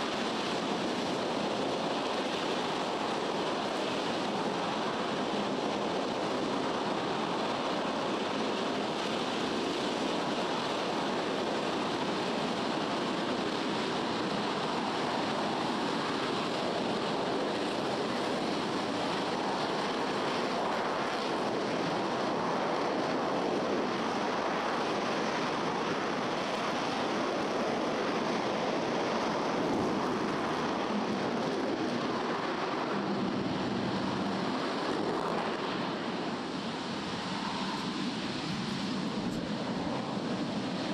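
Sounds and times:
rocket engine roaring: 0:27.6 - 0:40.9.

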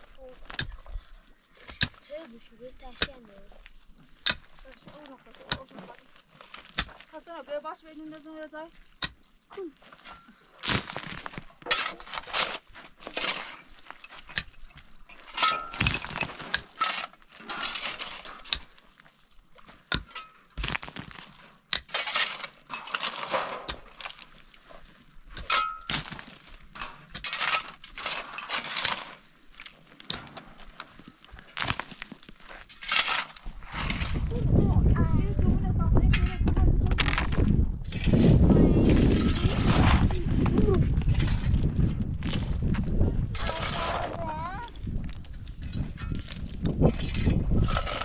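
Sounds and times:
digging tools striking stony dirt: 0:00.0 - 0:34.8, 0:36.0 - 0:48.0
stones clinking: 0:08.8 - 0:34.0.

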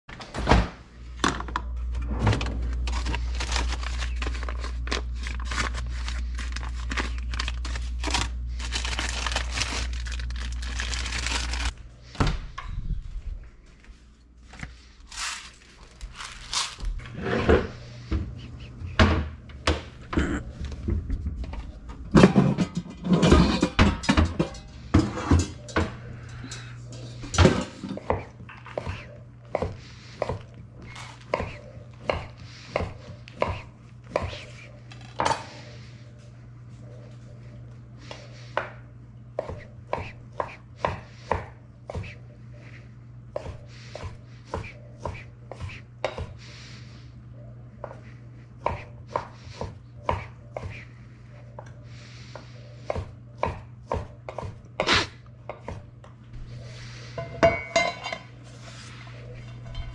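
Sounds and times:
steady low hum: 0:00.1 - 0:59.9
jars and pots clattering: 0:22.1 - 0:27.9.

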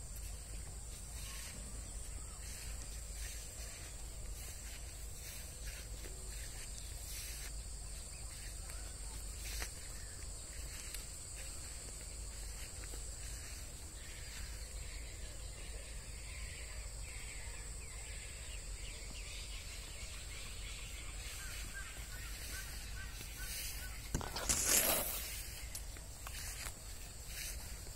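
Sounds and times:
faint chirps: 0:00.0 - 0:27.9
leaves rustling against phone: 0:00.1 - 0:08.6, 0:09.2 - 0:14.2, 0:21.2 - 0:27.9.

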